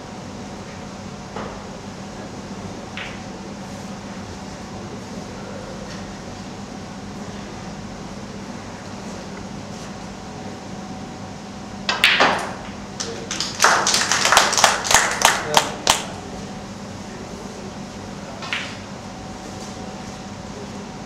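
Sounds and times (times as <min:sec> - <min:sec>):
spectators clapping: 0:13.0 - 0:16.2.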